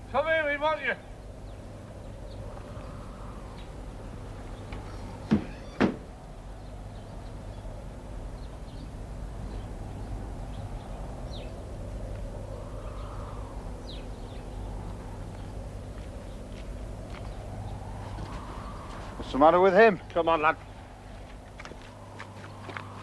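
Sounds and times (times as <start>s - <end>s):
steady low hum: 0.0s - 23.0s
door banging: 5.2s - 6.1s.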